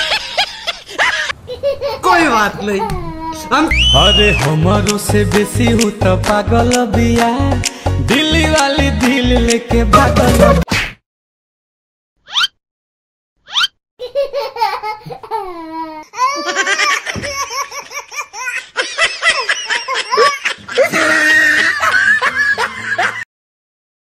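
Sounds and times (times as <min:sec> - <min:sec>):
loud laughter: 0:16.3 - 0:23.3.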